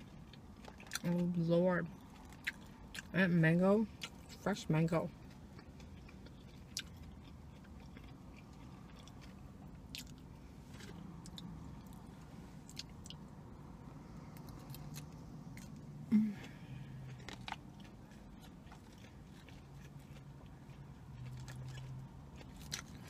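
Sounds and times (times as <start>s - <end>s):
person chewing: 0.0s - 1.2s, 1.9s - 3.1s, 3.8s - 4.4s, 5.1s - 13.3s, 14.2s - 23.0s
person humming: 16.1s - 16.5s.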